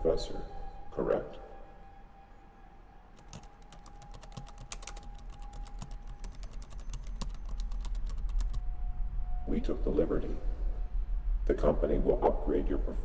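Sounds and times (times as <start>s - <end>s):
rapid typing on keyboard: 3.2s - 8.6s.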